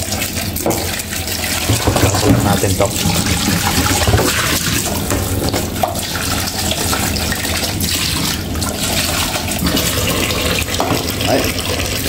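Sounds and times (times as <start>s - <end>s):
plastic container being rinsed: 0.0s - 12.0s
tap running into steel sink: 1.6s - 6.0s.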